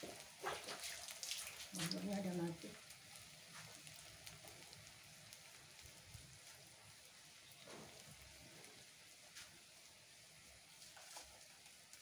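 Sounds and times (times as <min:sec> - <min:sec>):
oil sizzling in a wok: 0:00.0 - 0:12.0.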